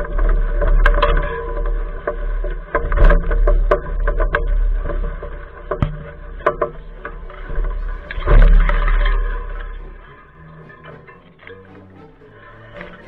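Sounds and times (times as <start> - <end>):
low rumble: 6.8 - 13.0.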